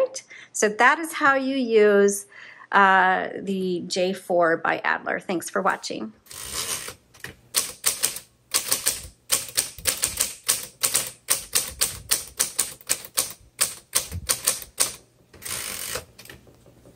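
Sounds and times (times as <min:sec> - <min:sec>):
typewriter rasping sound: 0:06.3 - 0:16.3
manual typewriter keystrokes: 0:06.3 - 0:16.4.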